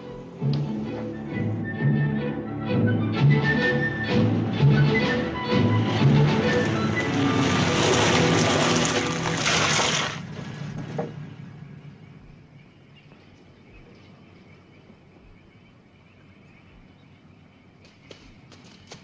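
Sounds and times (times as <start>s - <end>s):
film music: 0.0s - 10.2s
truck engine: 0.0s - 12.4s
faint outdoor ambience: 0.0s - 19.0s.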